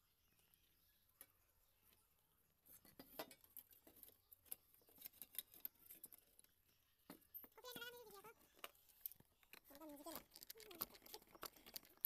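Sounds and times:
small objects clicking: 8.4 - 12.0.

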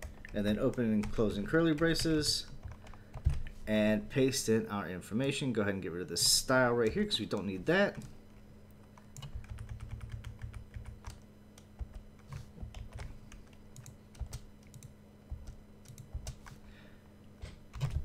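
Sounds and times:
faint steady hum: 0.0 - 18.0
typing on computer keyboard: 9.2 - 16.6, 17.7 - 18.0.

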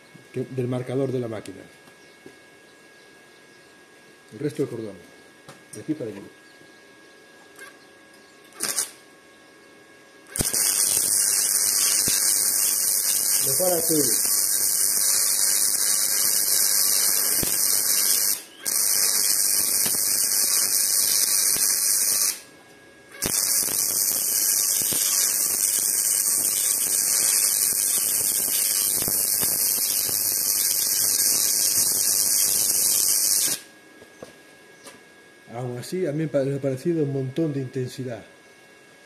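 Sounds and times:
welding arc hissing crackle: 8.5 - 9.0, 10.3 - 22.5, 23.1 - 33.7.

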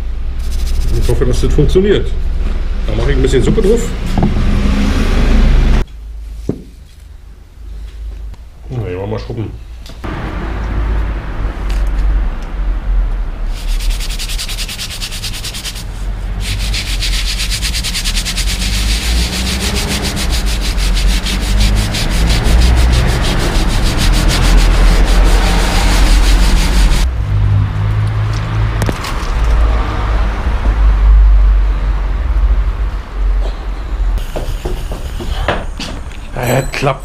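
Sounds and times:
brush scrubbing rough wall: 0.4 - 1.2, 13.5 - 27.1.

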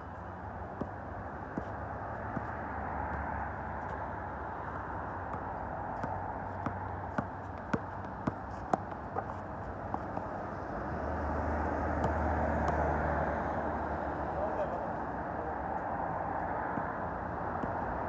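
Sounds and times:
outdoor background noise: 0.0 - 18.0
basketball bouncing on court: 5.3 - 10.4, 11.8 - 13.0.

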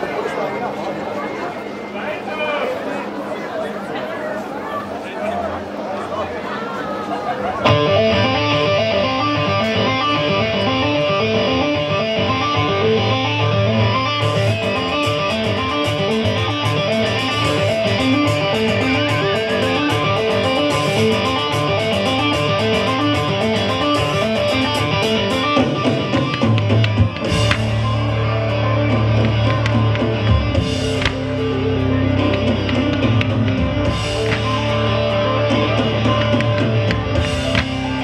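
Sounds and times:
music with repeating guitar figure: 7.6 - 38.0.

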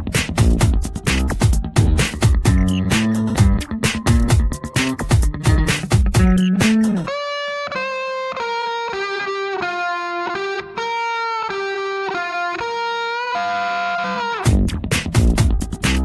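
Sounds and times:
drum beat: 0.0 - 7.1, 14.5 - 16.0
electric guitar melody: 1.7 - 14.8.

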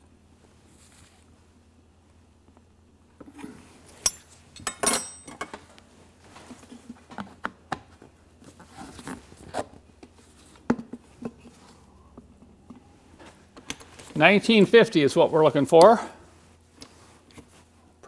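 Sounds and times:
metal and glass clinks: 4.0 - 5.4.

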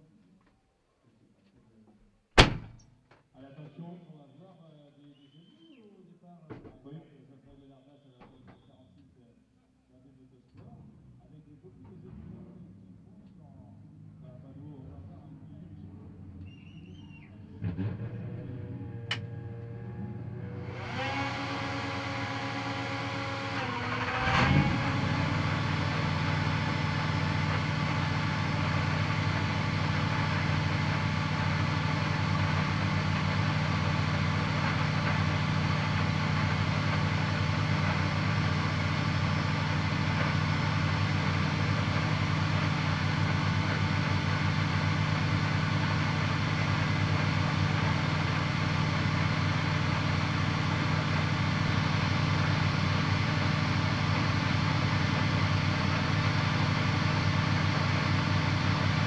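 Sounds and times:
loud thump: 2.4 - 2.8
car engine idling: 10.9 - 59.0.

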